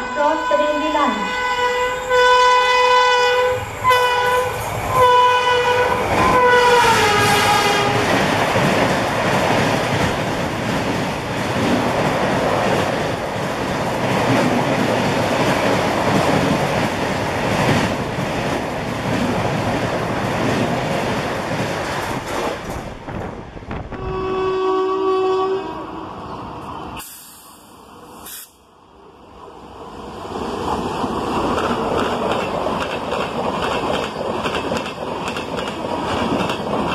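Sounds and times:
locomotive horn blasts: 0:00.0 - 0:08.0, 0:24.0 - 0:26.1
train wheels on rails: 0:03.1 - 0:24.3, 0:30.0 - 0:36.9
train clatter: 0:06.1 - 0:24.0, 0:31.1 - 0:36.9.

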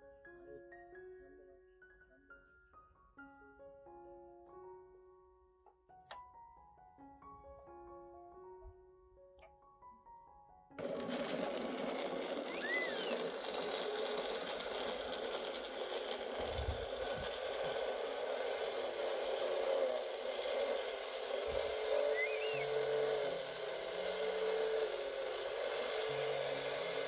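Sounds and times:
electric kitchen motor running: 0:10.8 - 0:27.0.

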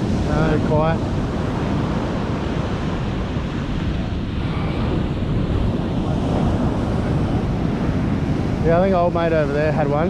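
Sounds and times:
ocean surf breaking: 0:00.0 - 0:10.0
wind buffeting microphone: 0:00.0 - 0:10.0.

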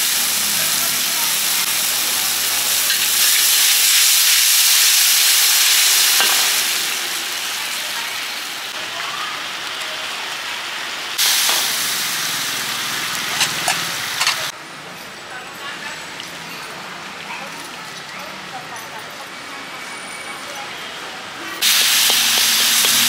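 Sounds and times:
noodles sizzling: 0:00.0 - 0:14.5, 0:21.6 - 0:23.0.

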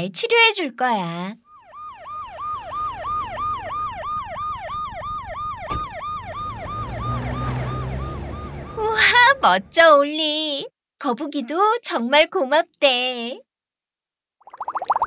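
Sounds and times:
cartoon ambulance siren yelp: 0:01.4 - 0:10.0
low vehicle rumble: 0:01.9 - 0:09.9.

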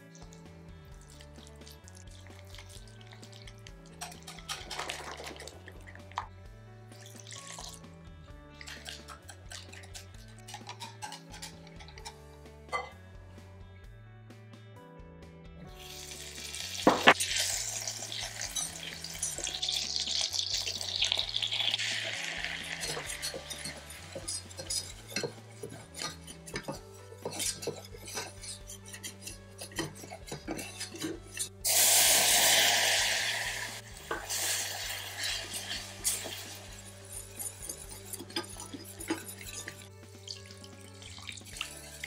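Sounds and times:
soft background music: 0:00.0 - 0:42.0
milk pouring into a pan: 0:00.9 - 0:06.2, 0:06.9 - 0:07.8, 0:15.8 - 0:31.0, 0:31.7 - 0:42.0
butter sizzling in a pan: 0:01.0 - 0:05.7, 0:15.7 - 0:42.0
whisk clicking and scraping a pan: 0:01.0 - 0:06.2, 0:08.6 - 0:12.2, 0:16.8 - 0:31.8, 0:32.5 - 0:42.0.

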